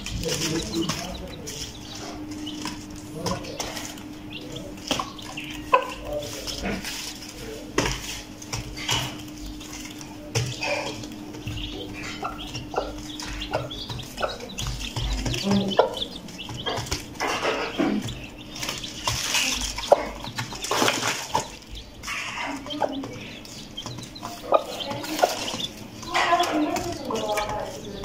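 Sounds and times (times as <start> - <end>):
chickens pecking and scratching: 0.0 - 28.0
rustling on cardboard: 6.0 - 10.2.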